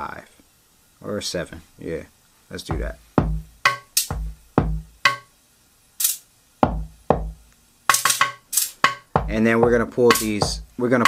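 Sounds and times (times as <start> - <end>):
drum machine kick with pitched tones: 2.7 - 5.3, 6.6 - 10.8
hi-hat or cymbal hits: 2.7 - 5.4, 6.0 - 11.0.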